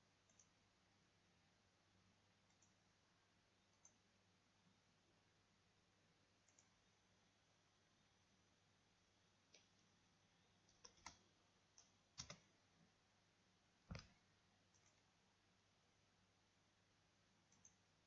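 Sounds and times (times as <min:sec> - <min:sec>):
mouse and keyboard clicks: 0:10.7 - 0:11.2, 0:11.8 - 0:12.5.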